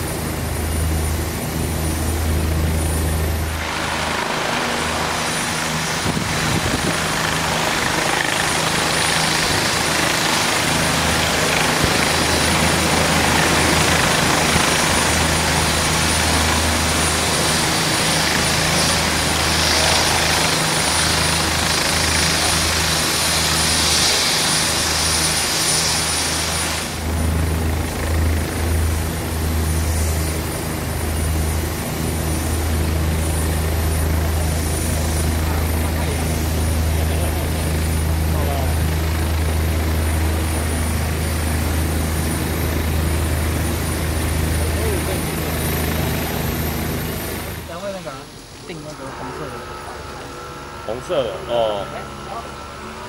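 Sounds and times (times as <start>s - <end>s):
wide rushing noise: 0.0s - 27.3s
helicopter rotor beat: 0.0s - 53.0s
high turbine whine: 0.0s - 53.0s.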